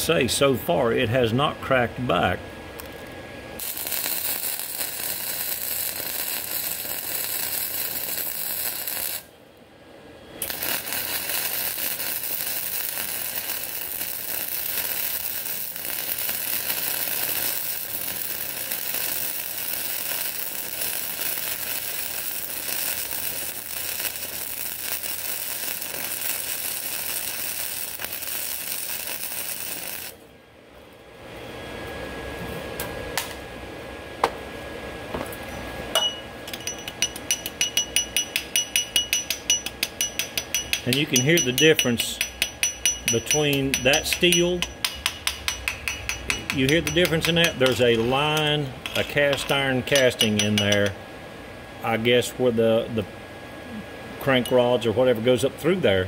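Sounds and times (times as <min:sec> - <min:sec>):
welding arc crackling: 0:02.8 - 0:09.3, 0:10.4 - 0:30.2, 0:37.0 - 0:51.0.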